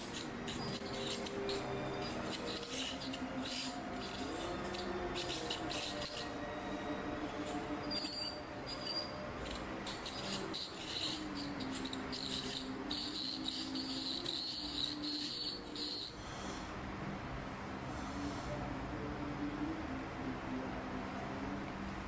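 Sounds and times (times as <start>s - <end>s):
dental ultrasonic tip chirping bursts: 0.0s - 6.4s, 7.8s - 16.2s.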